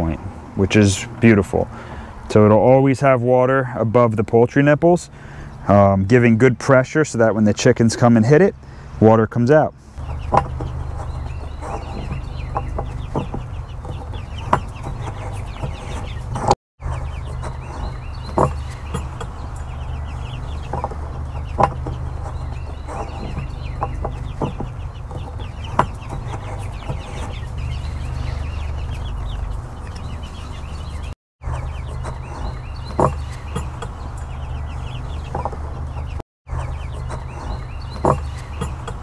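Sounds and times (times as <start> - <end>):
steady low hum: 9.7 - 39.0
chickens clucking: 10.0 - 39.0.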